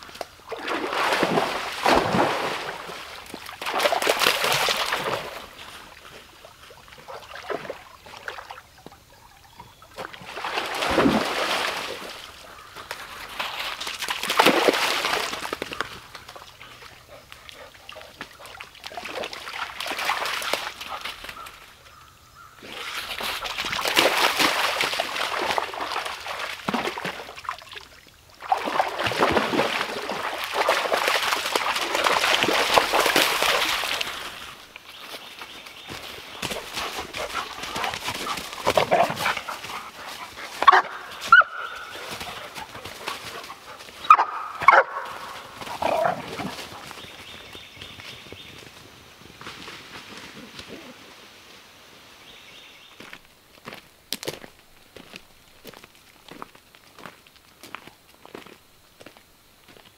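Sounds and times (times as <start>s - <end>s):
dogs splashing through water: 0.1s - 21.8s, 22.6s - 48.2s.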